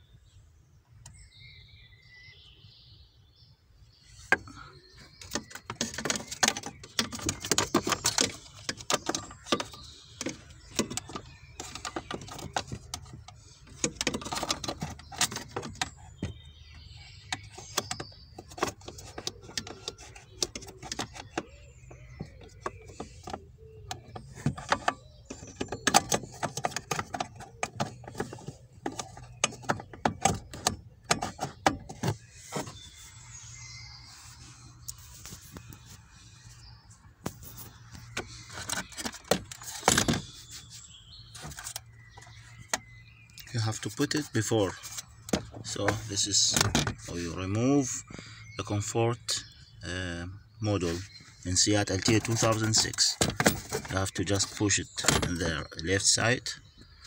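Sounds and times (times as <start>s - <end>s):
plastic car parts clicking and knocking: 4.2s - 32.9s, 37.2s - 40.4s, 41.2s - 47.2s, 51.6s - 56.2s.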